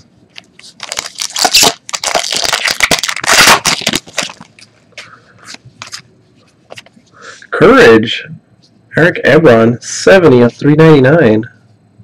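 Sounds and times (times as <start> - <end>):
plastic wrapper tearing and crinkling: 0.6 - 4.6.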